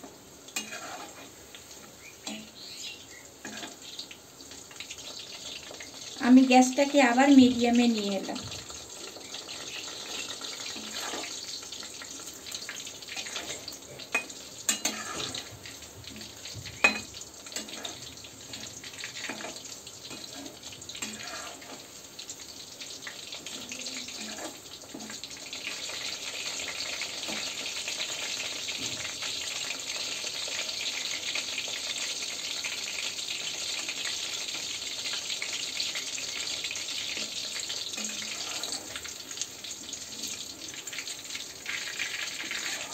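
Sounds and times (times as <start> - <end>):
food sizzling in hot oil: 0.0 - 42.9.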